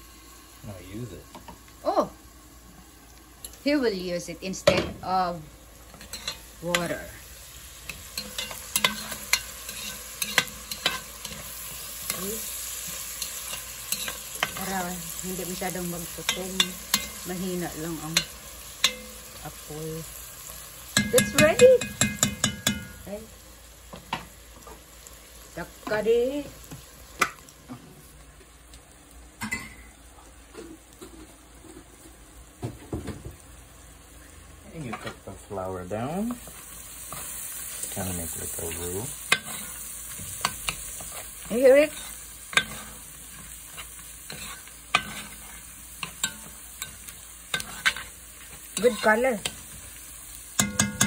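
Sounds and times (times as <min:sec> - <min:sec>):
vegetables sizzling in a pot: 0:00.0 - 0:51.0
metal spoon clinking on pot: 0:06.0 - 0:06.9, 0:07.9 - 0:12.2, 0:21.0 - 0:22.9, 0:50.6 - 0:51.0.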